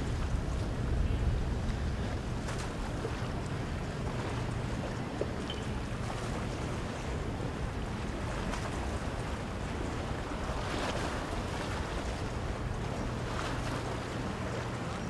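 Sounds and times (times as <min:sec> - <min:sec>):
water washing along hull: 0:00.0 - 0:15.0
wind on microphone: 0:00.0 - 0:15.0
yacht engine drone: 0:00.0 - 0:15.0.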